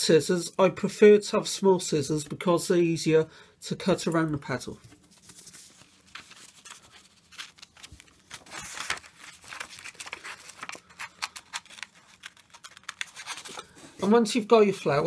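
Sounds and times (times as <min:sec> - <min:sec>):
paper rustling: 0:04.5 - 0:14.2.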